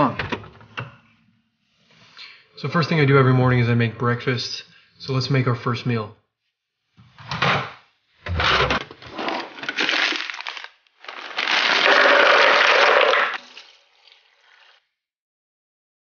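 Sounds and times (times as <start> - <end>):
ingredients clattering into jug: 8.6 - 13.8
tap water filling jug: 12.2 - 14.8.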